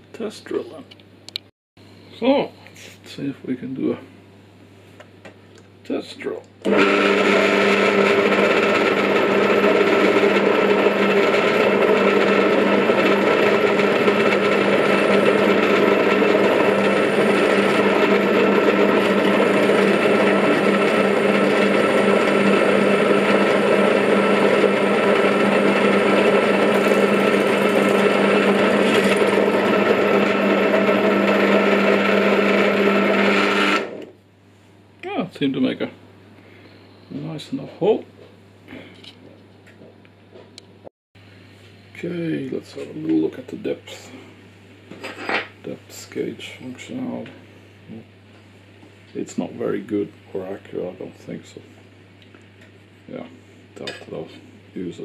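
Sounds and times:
drill press motor hum and whine: 0:06.6 - 0:34.2.

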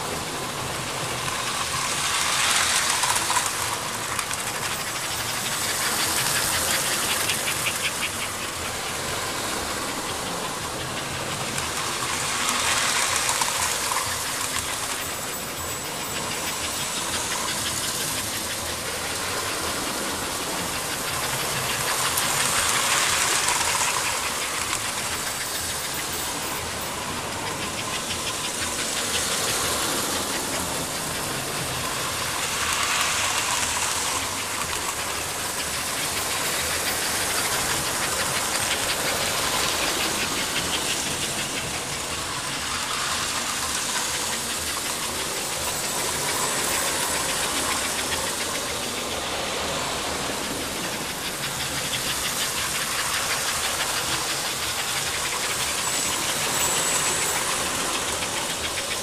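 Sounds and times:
model train running on track: 0:00.0 - 0:59.0.

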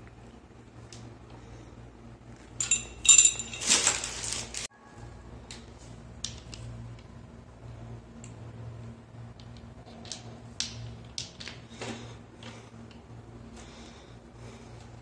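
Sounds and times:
metal fittings clinking: 0:02.4 - 0:04.5.

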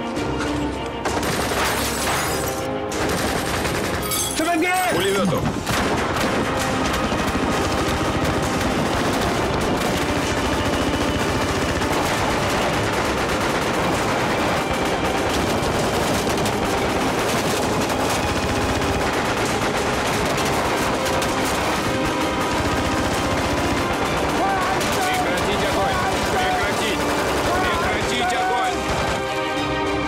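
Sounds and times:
heavy continuous gunfire: 0:01.0 - 0:30.0.

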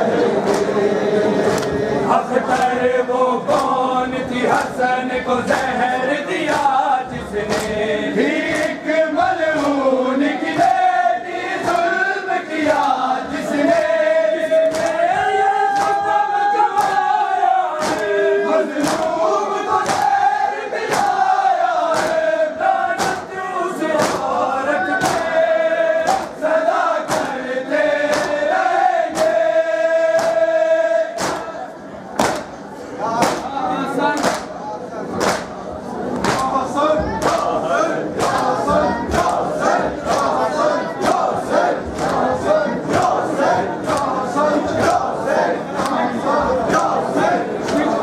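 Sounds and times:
men chanting together: 0:00.0 - 0:34.5, 0:36.2 - 0:48.0
hands slapping chests: 0:00.4 - 0:00.8, 0:01.4 - 0:01.8, 0:02.5 - 0:02.8, 0:06.5 - 0:06.8, 0:07.5 - 0:07.8, 0:08.5 - 0:08.8, 0:09.5 - 0:09.9, 0:14.6 - 0:15.0, 0:15.7 - 0:16.0, 0:16.8 - 0:17.0, 0:17.8 - 0:18.1, 0:18.8 - 0:19.2, 0:19.8 - 0:20.2, 0:20.8 - 0:21.3, 0:21.9 - 0:22.3, 0:22.9 - 0:23.3, 0:24.0 - 0:24.4, 0:25.0 - 0:25.4, 0:26.0 - 0:26.4, 0:27.0 - 0:27.4, 0:28.0 - 0:28.4, 0:29.1 - 0:29.4, 0:30.1 - 0:30.5, 0:31.2 - 0:31.5, 0:32.2 - 0:32.6, 0:33.2 - 0:33.5, 0:34.1 - 0:34.6, 0:35.2 - 0:35.6, 0:36.2 - 0:36.5, 0:37.2 - 0:37.6, 0:38.2 - 0:40.4, 0:41.0 - 0:41.3, 0:41.9 - 0:42.3, 0:43.8 - 0:44.2.

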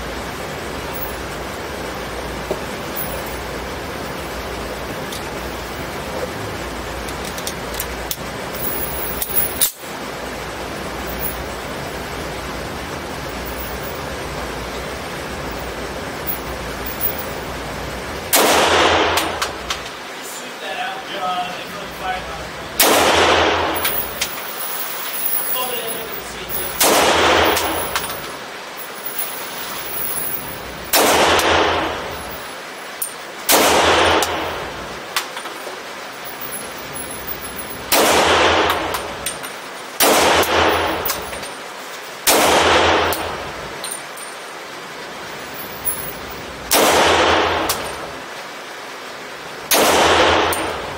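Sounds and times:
ventilation hiss: 0:00.0 - 0:50.9
pistol loading clack: 0:07.0 - 0:09.8, 0:23.7 - 0:25.6, 0:26.7 - 0:28.4, 0:40.5 - 0:41.5
pistol shots echoing indoors: 0:18.3 - 0:19.9, 0:22.8 - 0:24.3, 0:26.6 - 0:28.4, 0:30.9 - 0:32.4, 0:33.5 - 0:34.8, 0:37.9 - 0:39.2, 0:40.0 - 0:41.4, 0:42.2 - 0:43.6, 0:46.7 - 0:48.0, 0:49.7 - 0:50.9.

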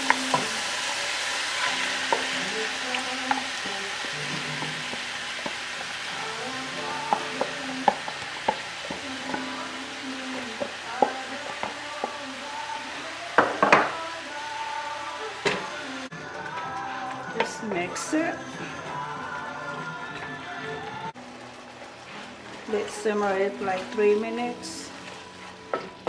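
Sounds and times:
meat sizzling in a hot pan: 0:00.0 - 0:20.4, 0:21.0 - 0:26.0
spatula tapping pan: 0:01.6 - 0:12.5, 0:13.4 - 0:14.0.

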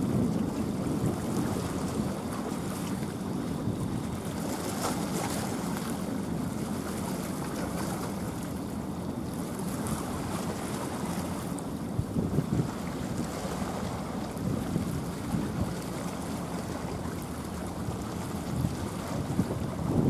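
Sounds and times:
wind noise on microphone: 0:00.0 - 0:05.6, 0:11.8 - 0:20.0
sea water ambience: 0:00.0 - 0:20.0.

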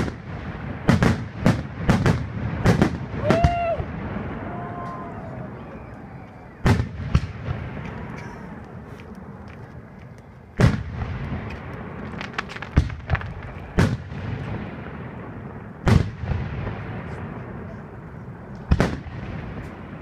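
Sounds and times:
firework shells booming: 0:00.0 - 0:05.0, 0:06.6 - 0:08.7, 0:10.6 - 0:17.7
firework crackles: 0:00.0 - 0:20.0.

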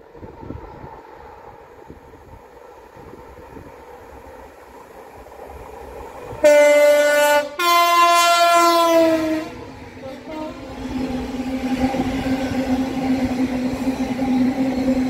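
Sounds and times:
train rumbling by: 0:00.0 - 0:15.0
two-tone locomotive horn: 0:06.4 - 0:10.8.

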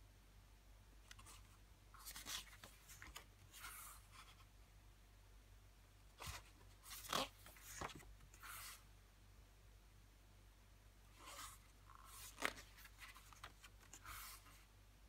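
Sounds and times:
booklet pages turning: 0:01.0 - 0:04.5, 0:06.2 - 0:08.8, 0:11.2 - 0:14.6.

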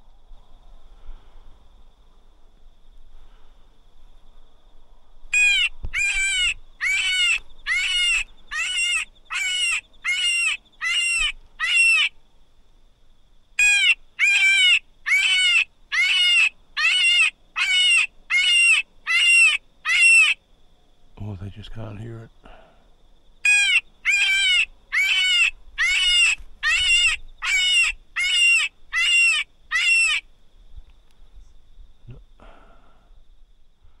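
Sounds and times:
predator call high squeals: 0:05.4 - 0:12.1, 0:13.6 - 0:20.4, 0:23.4 - 0:30.2.

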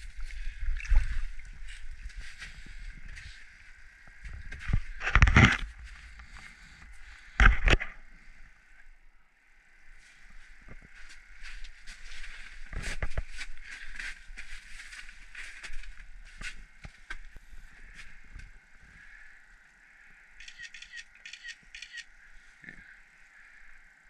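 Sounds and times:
crunching on snow: 0:10.8 - 0:18.2.

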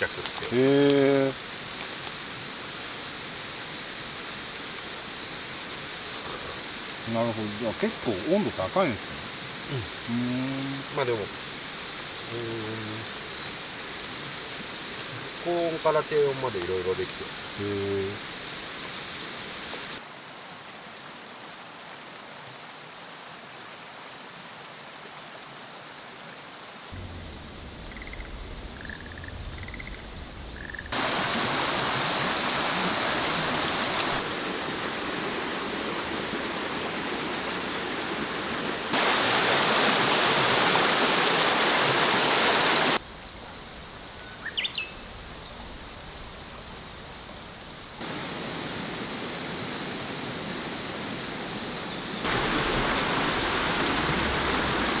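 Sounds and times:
even rushing hiss: 0:00.0 - 0:20.0, 0:27.0 - 0:55.0
high rising bird call: 0:44.2 - 0:45.1
short bird chirps: 0:44.2 - 0:45.1.

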